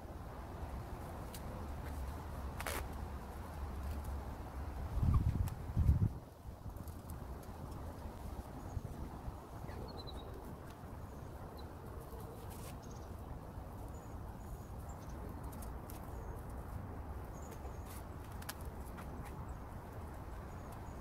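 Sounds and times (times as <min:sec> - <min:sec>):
small birds chirping: 0:06.7 - 0:18.4.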